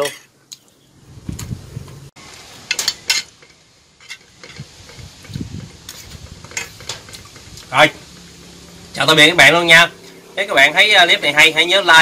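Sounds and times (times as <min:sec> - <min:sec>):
metal spoon scraping frying pan: 0:02.6 - 0:07.6.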